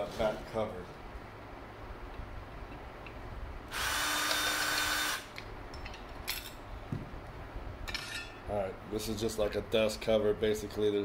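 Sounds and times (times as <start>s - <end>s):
cordless drill running: 3.7s - 5.3s.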